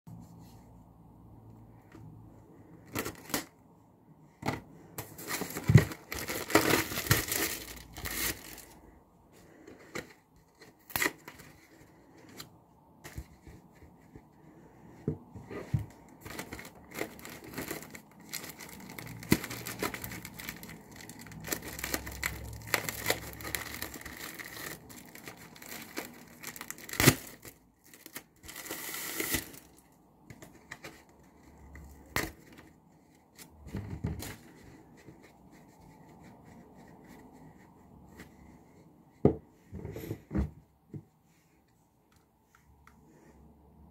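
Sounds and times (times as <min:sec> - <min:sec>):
plastic wrap crinkling and tearing: 0:02.9 - 0:03.5, 0:05.0 - 0:08.8, 0:16.2 - 0:29.9.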